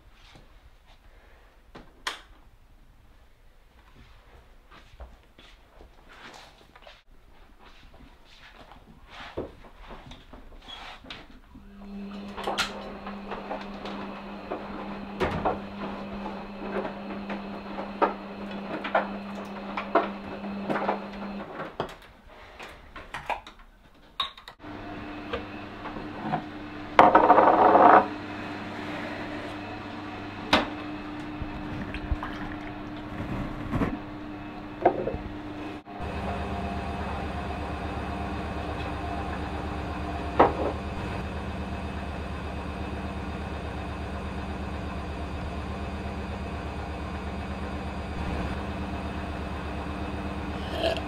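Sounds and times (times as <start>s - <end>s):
kitchen appliance humming: 11.6s - 21.5s, 24.6s - 51.0s
liquid pouring into a glass: 31.8s - 32.8s.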